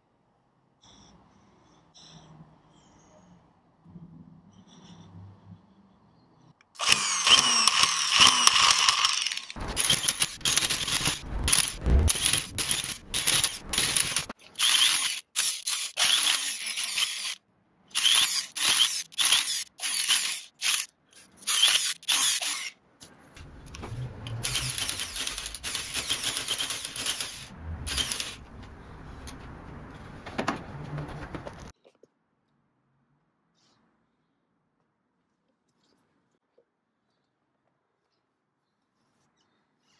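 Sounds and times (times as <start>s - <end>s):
electric tufting gun whining: 6.8s - 14.3s.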